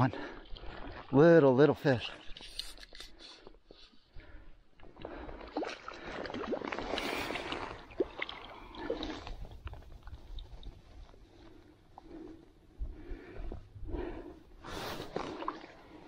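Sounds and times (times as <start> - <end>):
stream water splashing: 5.2 - 10.6.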